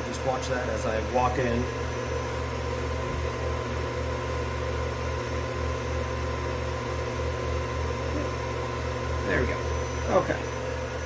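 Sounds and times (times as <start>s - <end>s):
milling machine humming: 0.0s - 11.0s
spindle whine: 0.0s - 11.0s.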